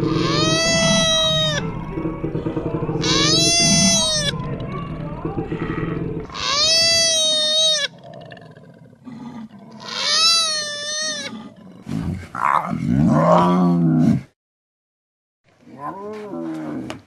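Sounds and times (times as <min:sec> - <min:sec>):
high wavering animal cries: 0:00.0 - 0:02.2, 0:02.9 - 0:04.5, 0:06.2 - 0:08.0, 0:09.8 - 0:11.3
lion cub growling: 0:00.0 - 0:14.1.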